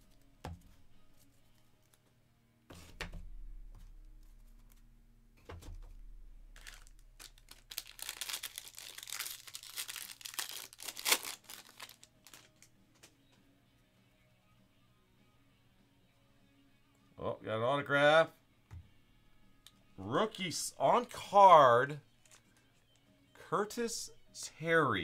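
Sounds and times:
plastic wrapper tearing and crinkling: 6.5s - 12.7s.

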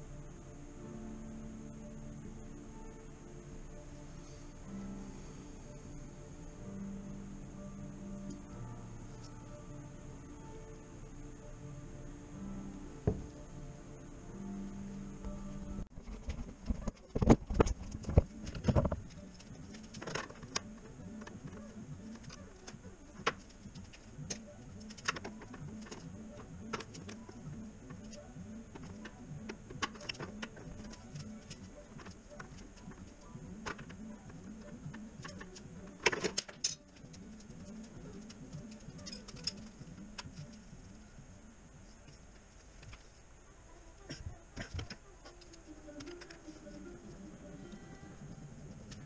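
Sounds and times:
hand tools and metal parts clinking: 35.2s - 37.4s, 38.2s - 40.3s.

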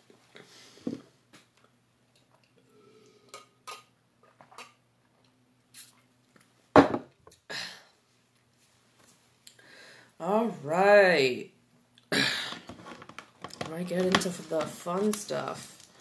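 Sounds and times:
person sipping a drink: 2.2s - 4.8s, 5.6s - 6.1s
glass set down on table: 6.8s - 7.1s.

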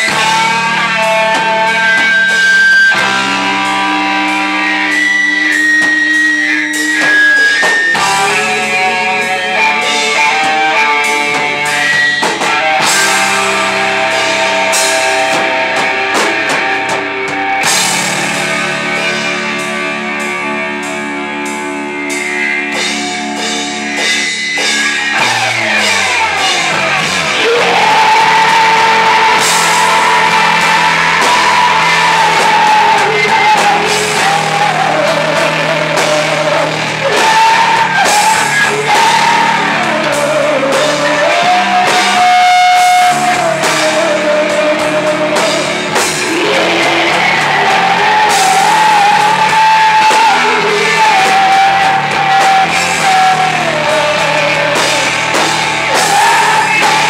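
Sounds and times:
live rock band playing: 0.0s - 57.0s
woman singing: 27.4s - 57.0s.

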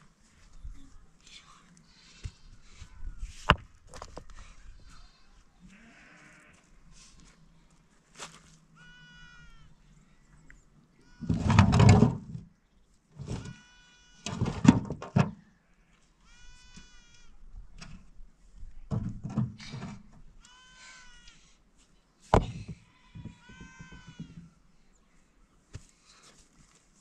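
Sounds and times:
stones knocking and grating: 3.4s - 4.4s, 22.3s - 24.4s
young animal bleating: 4.9s - 6.7s, 8.8s - 9.8s, 11.0s - 11.6s, 13.3s - 14.4s, 15.7s - 17.4s, 20.4s - 21.6s, 22.7s - 24.6s.

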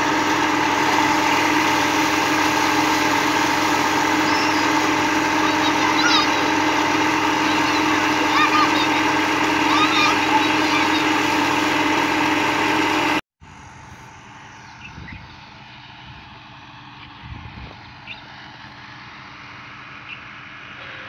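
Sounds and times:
water gushing from a pipe: 0.0s - 13.0s
steady hum: 0.0s - 21.0s
tractor diesel engine running: 0.0s - 21.0s
faint bird chirps: 14.6s - 15.4s, 18.0s - 18.3s, 20.0s - 21.0s.

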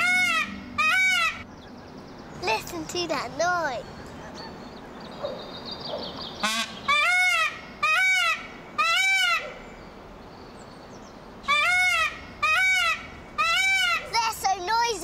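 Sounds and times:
peacock calling: 0.0s - 1.5s, 3.7s - 9.6s, 11.4s - 14.2s.

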